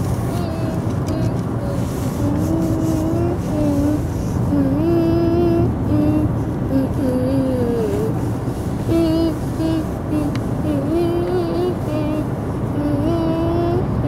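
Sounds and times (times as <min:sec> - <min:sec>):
high voice singing slow melody: 0:00.0 - 0:08.2, 0:08.8 - 0:14.0
car road and engine rumble: 0:00.0 - 0:14.0.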